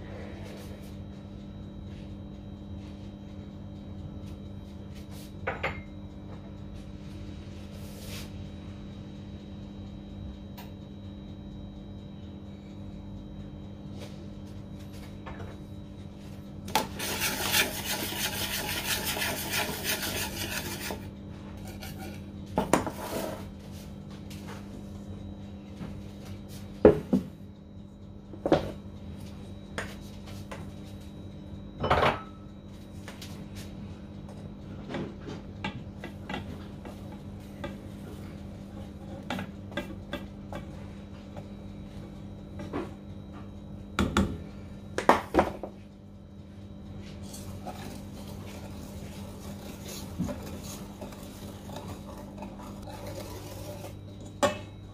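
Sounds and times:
whisk scraping metal bowl: 0:16.8 - 0:22.2, 0:47.2 - 0:54.2.

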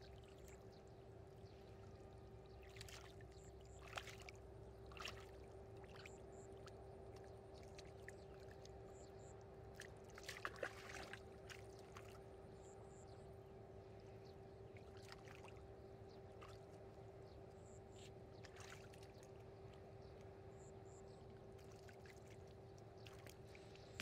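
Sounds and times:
hands sloshing in muddy water: 0:02.7 - 0:06.8, 0:09.7 - 0:12.3, 0:18.4 - 0:19.4.

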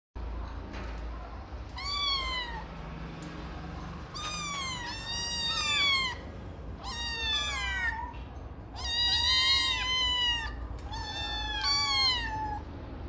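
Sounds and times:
kittens meowing: 0:01.7 - 0:02.8, 0:04.0 - 0:12.7.

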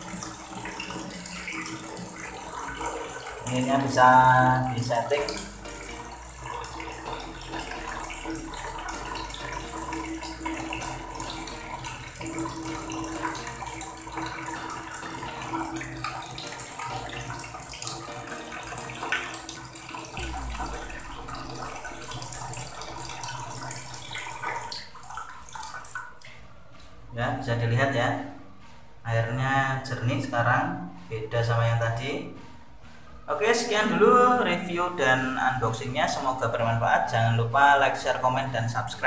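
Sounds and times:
water pouring into bucket: 0:00.0 - 0:26.4.

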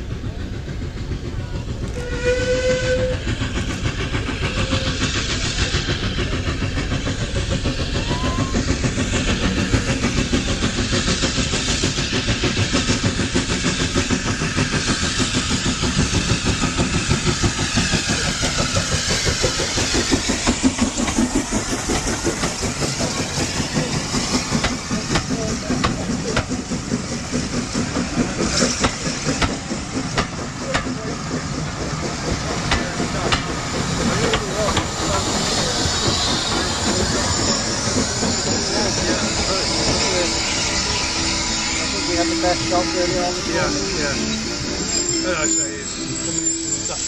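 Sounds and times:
train wheels clattering on rails: 0:00.0 - 0:47.0
steam locomotive whistle: 0:01.9 - 0:03.4, 0:35.3 - 0:47.0.

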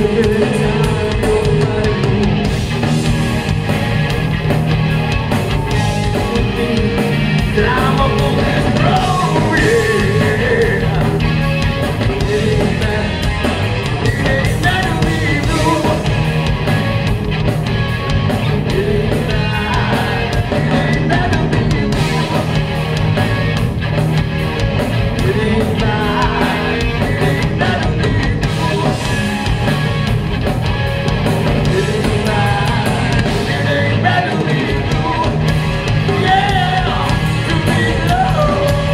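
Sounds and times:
man singing: 0:00.0 - 0:02.6, 0:05.6 - 0:16.3, 0:18.3 - 0:22.6, 0:25.1 - 0:29.7, 0:31.6 - 0:38.9
rock band playing: 0:00.0 - 0:38.9.

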